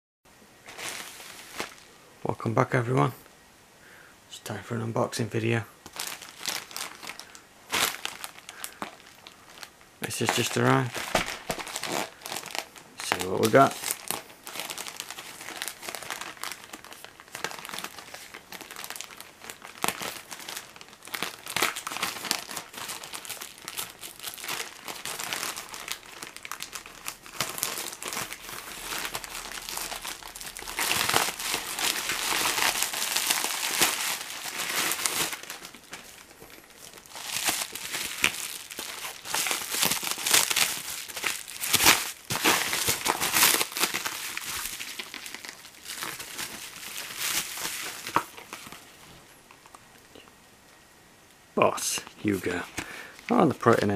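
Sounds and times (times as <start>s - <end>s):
plastic bag crinkling: 0.6s - 2.0s, 5.8s - 50.2s, 51.8s - 53.9s
bubble wrap crinkling: 0.6s - 2.1s, 5.8s - 50.3s, 51.7s - 53.9s.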